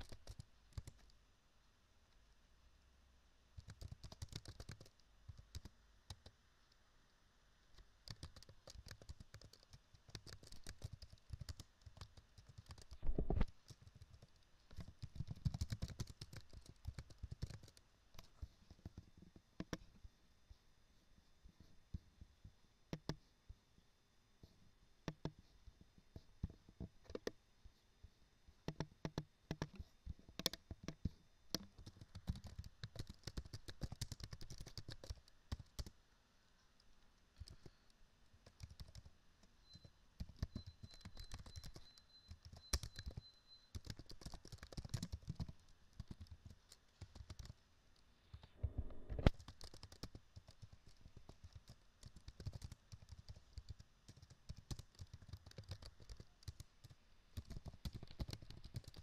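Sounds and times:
computer keyboard typing: 0.0s - 1.1s, 3.6s - 6.4s, 8.0s - 19.0s, 28.7s - 29.8s, 30.4s - 35.9s, 37.4s - 37.8s, 38.4s - 39.1s, 39.7s - 47.6s, 49.1s - 59.0s.

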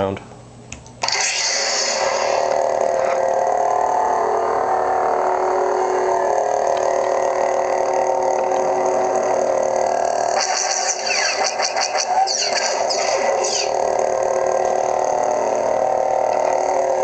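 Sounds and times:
lightsaber idle hum: 1.0s - 17.0s.

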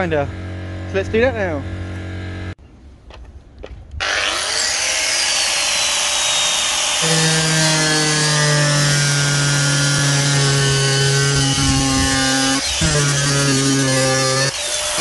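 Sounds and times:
angle grinder cutting metal: 4.0s - 15.0s.

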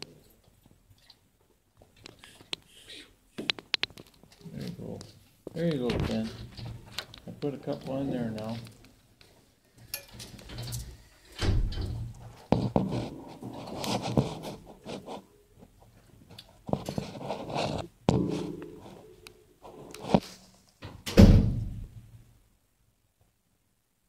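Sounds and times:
knocks and scrapes in kennel: 11.7s - 20.6s.

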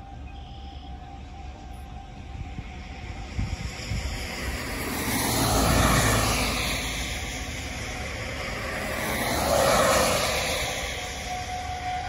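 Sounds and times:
tyres hissing on wet road: 2.6s - 12.0s.

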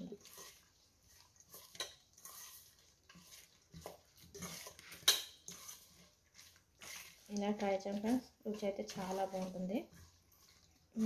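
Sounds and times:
wet squishing of mixing food: 0.0s - 11.0s
clinks against metal pot: 4.9s - 5.5s.

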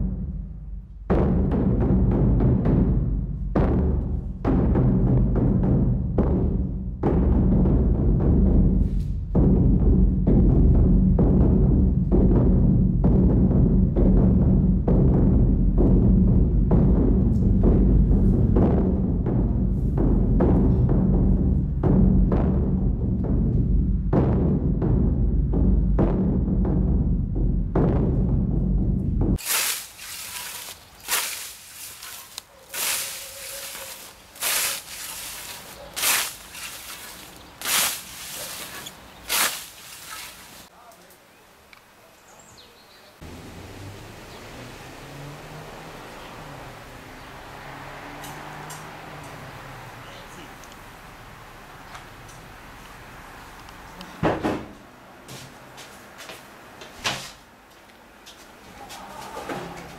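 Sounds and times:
scythe swishing through grass: 29.4s - 40.7s
loud knocks on door or cupboard: 54.2s - 54.8s.

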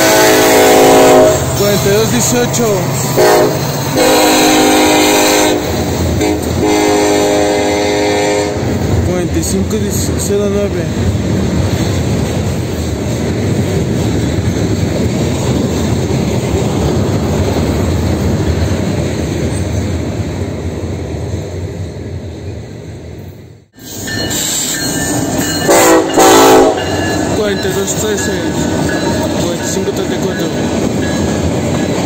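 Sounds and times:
locomotive horn: 0.0s - 1.6s, 3.1s - 8.7s, 25.6s - 27.0s
train cars rolling rumble: 0.0s - 32.0s.

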